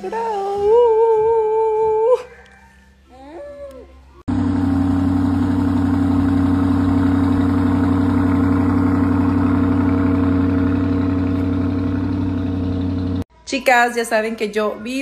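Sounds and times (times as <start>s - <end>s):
car engine idling: 4.3s - 13.3s.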